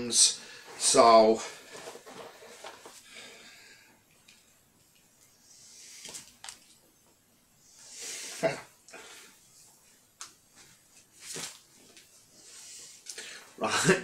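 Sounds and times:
boxing gloves rustling and scraping: 0:00.5 - 0:03.3, 0:07.8 - 0:13.1.

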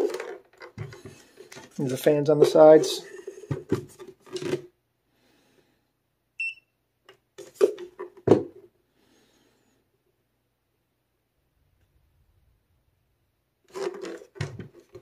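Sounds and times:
short electronic beep: 0:06.4 - 0:06.7.

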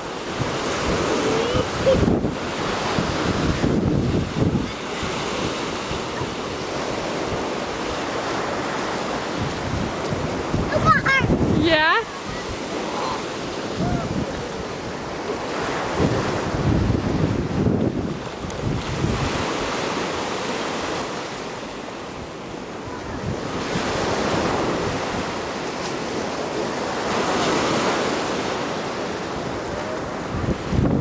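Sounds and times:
wind buffeting microphone: 0:00.0 - 0:20.0, 0:29.4 - 0:31.0
ocean surf washing ashore: 0:00.0 - 0:31.0.

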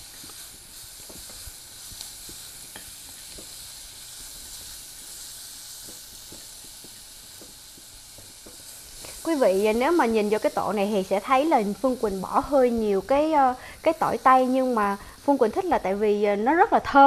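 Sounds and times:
leeks sizzling in hot oil: 0:00.0 - 0:17.0
chopsticks ticking against pot: 0:05.8 - 0:09.8.

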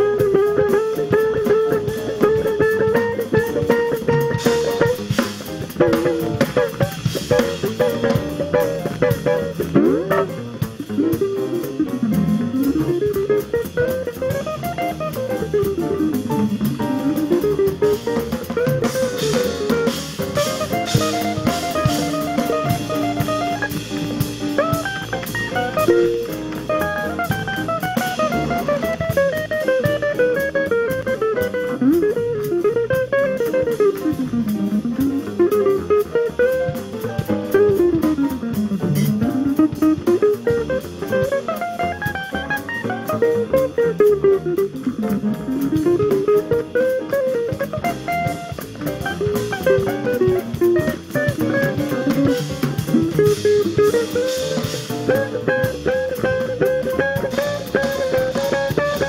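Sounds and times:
drum kit: 0:00.0 - 0:59.0
jazz electric guitar solo: 0:00.0 - 0:59.0.

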